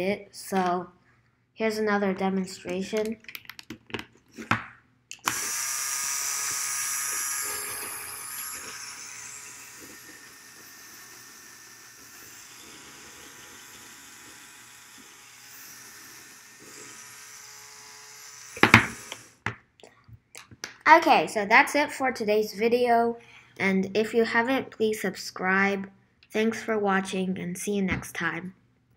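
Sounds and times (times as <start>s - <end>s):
small electric motor whirring: 5.2s - 19.4s.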